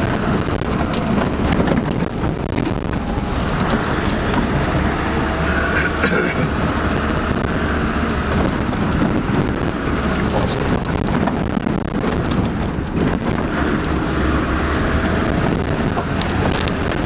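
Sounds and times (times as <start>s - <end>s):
knocks and rattles from bumps: 0.0s - 5.4s, 6.8s - 17.0s
off-road vehicle engine running: 0.0s - 17.0s
wind buffeting microphone: 0.0s - 17.0s.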